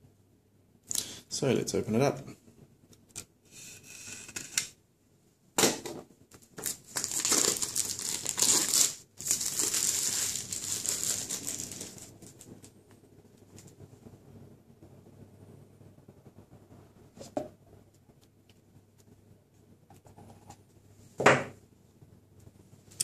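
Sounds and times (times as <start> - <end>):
cellophane crinkling: 6.4 - 12.8.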